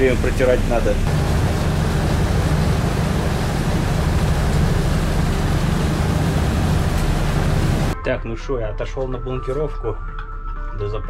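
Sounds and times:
ship engine droning: 0:00.0 - 0:08.0
wind and water rushing: 0:00.0 - 0:08.0.

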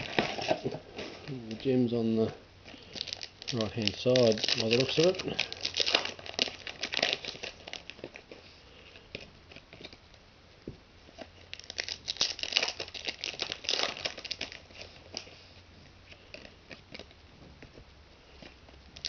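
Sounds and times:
foil packs crinkling and tearing: 0:00.0 - 0:10.0, 0:11.1 - 0:15.5.

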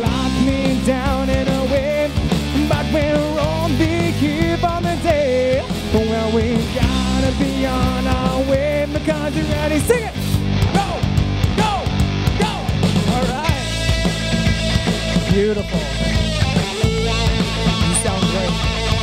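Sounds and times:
person singing: 0:00.0 - 0:13.8
bass guitar: 0:00.0 - 0:19.0
drums: 0:00.0 - 0:19.0
electric guitar: 0:00.0 - 0:19.0.

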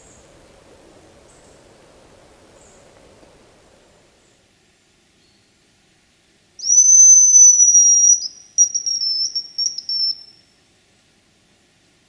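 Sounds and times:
high-pitched decoy whistle: 0:06.6 - 0:10.4.

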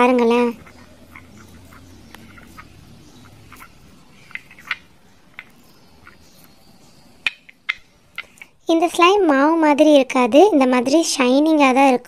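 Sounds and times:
slime squelching: 0:00.0 - 0:08.6.

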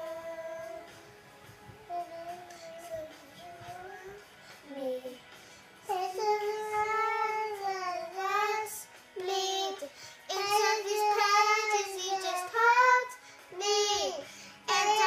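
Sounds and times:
girls singing: 0:00.0 - 0:01.0, 0:05.9 - 0:15.0.

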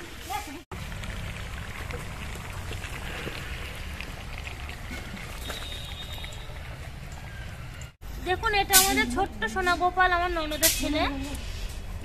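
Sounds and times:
curry bubbling: 0:00.7 - 0:07.8.

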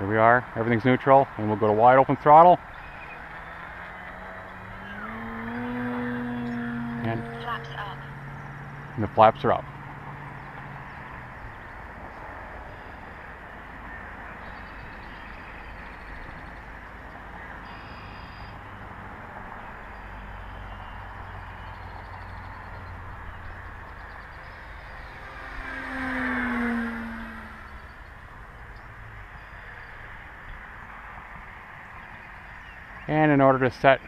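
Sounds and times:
model plane motor running: 0:02.7 - 0:09.2, 0:23.7 - 0:28.1.

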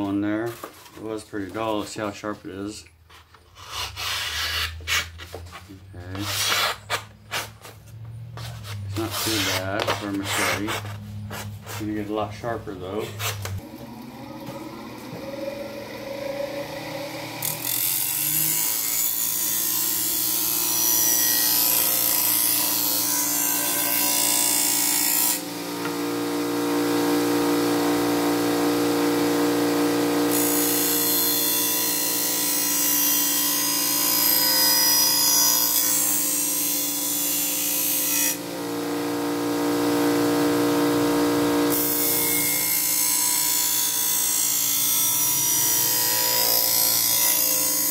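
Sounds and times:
blade grinding hissing scrape: 0:08.4 - 0:12.2
bench grinder motor hum: 0:13.3 - 0:47.9.

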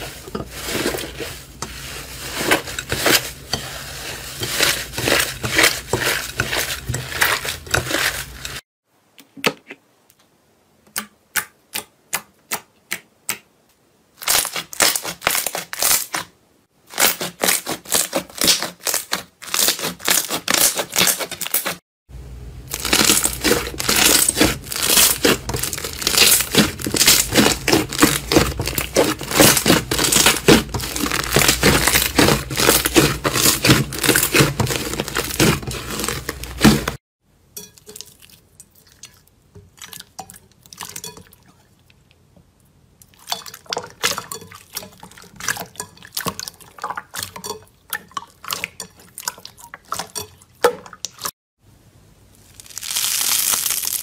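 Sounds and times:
slime crackling and popping: 0:22.7 - 0:36.9, 0:52.4 - 0:54.0.

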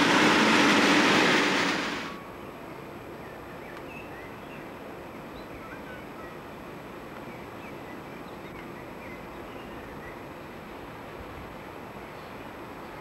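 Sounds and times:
diesel locomotive rumbling: 0:00.0 - 0:02.2.

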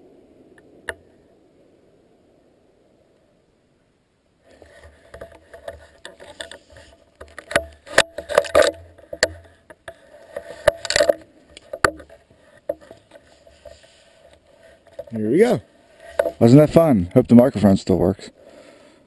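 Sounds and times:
faint steady hum: 0:00.0 - 0:19.0
camera handling knocks and clatter: 0:04.7 - 0:15.1, 0:16.0 - 0:16.4.

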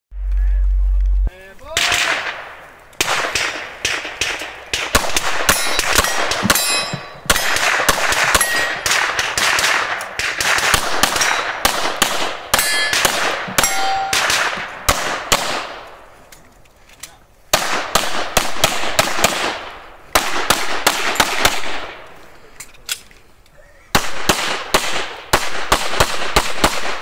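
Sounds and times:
pistol shots: 0:01.8 - 0:16.0, 0:17.5 - 0:22.0, 0:23.9 - 0:27.0
steel targets clanging: 0:05.5 - 0:07.6, 0:08.2 - 0:09.0, 0:11.1 - 0:11.6, 0:12.6 - 0:14.6.

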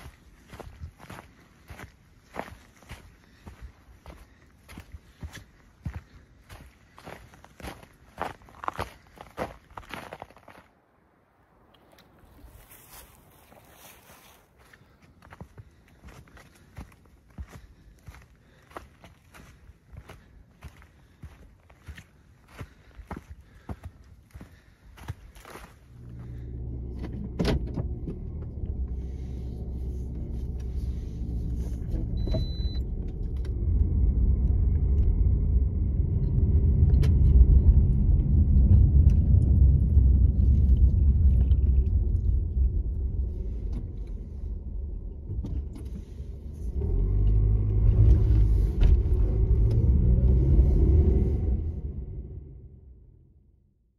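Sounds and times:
car engine and road rumble: 0:00.0 - 0:53.9
short high beep: 0:32.2 - 0:32.9.

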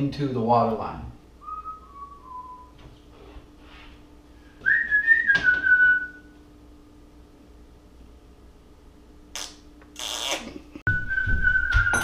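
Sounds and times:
faint steady hum: 0:00.0 - 0:12.0
man whistling long note: 0:01.4 - 0:02.8, 0:04.6 - 0:06.3, 0:10.9 - 0:12.0.

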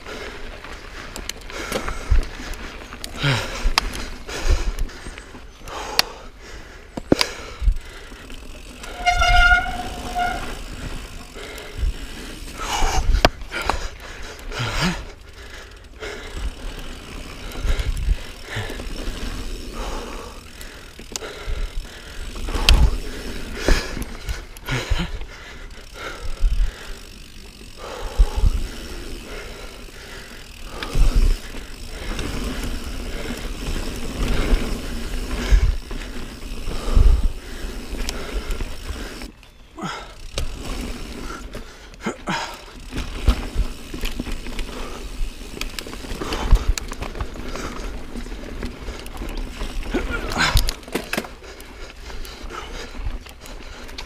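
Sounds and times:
bike tyres on dirt trail: 0:00.0 - 0:54.0
bike thumping over bumps: 0:08.6 - 0:11.3.

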